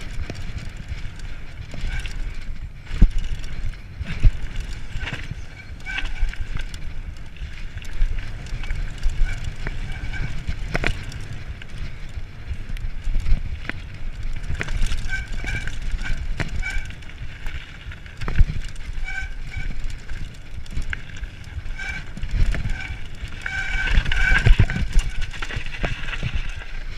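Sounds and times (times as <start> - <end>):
bike clicks and rattles: 0.0 - 26.9
tyres rumbling on gravel trail: 0.0 - 26.9.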